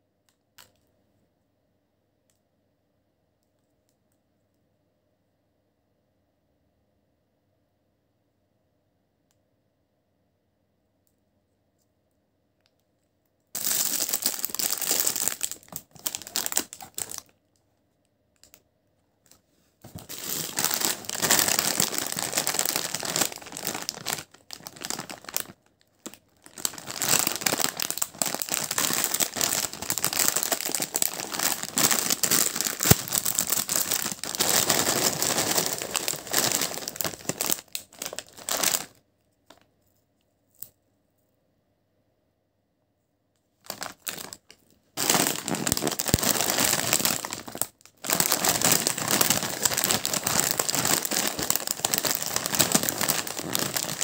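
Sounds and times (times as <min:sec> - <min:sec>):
crisp packet crinkling: 0:13.6 - 0:17.3, 0:19.8 - 0:39.6, 0:43.6 - 0:54.0.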